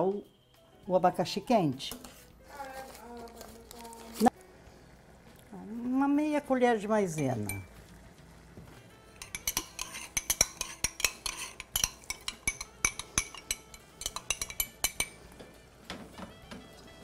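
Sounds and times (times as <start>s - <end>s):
spoon clinking against kitchenware: 7.2s - 7.7s, 9.2s - 15.2s.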